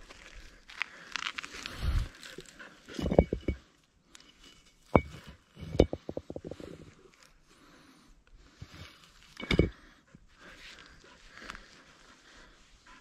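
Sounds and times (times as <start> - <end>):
dog panting: 10.1 - 13.0.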